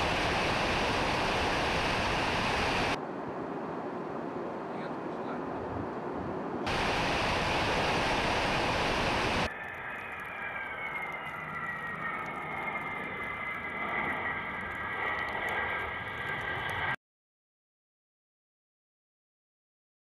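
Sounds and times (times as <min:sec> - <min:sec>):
jet turbofan whine: 0:00.0 - 0:03.0, 0:06.6 - 0:17.0
rushing air and engines: 0:00.0 - 0:17.0.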